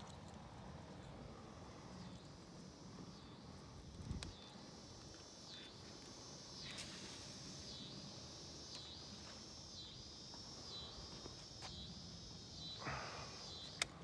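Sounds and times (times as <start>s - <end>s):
insect chorus drone: 0.0s - 14.0s
faint clicks: 13.6s - 14.0s.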